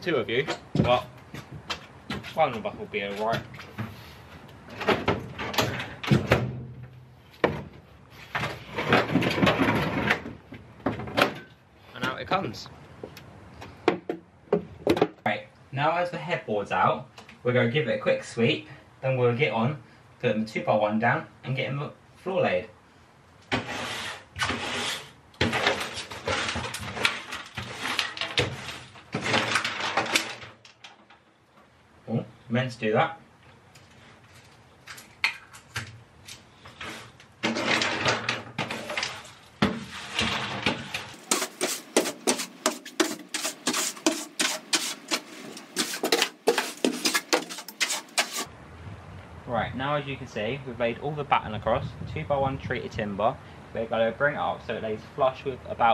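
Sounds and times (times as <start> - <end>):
broom sweeping van floor: 2.2 - 4.4, 23.5 - 29.4, 38.6 - 48.5
panel scraping and clattering: 8.2 - 11.5, 23.5 - 31.1, 36.7 - 48.5.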